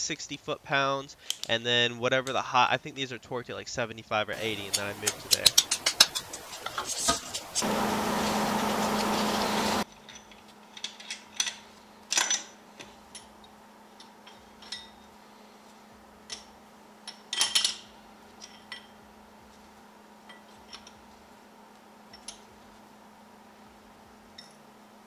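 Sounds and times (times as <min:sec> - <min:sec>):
metal parts clinking: 0:09.9 - 0:12.6, 0:17.1 - 0:19.0
metal parts clattering: 0:10.0 - 0:12.6.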